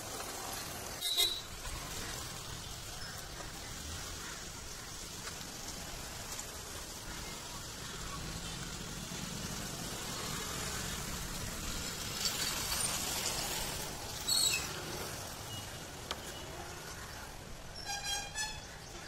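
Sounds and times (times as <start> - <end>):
roadside traffic noise: 0.0 - 19.0
motorcycle passing: 5.5 - 15.9.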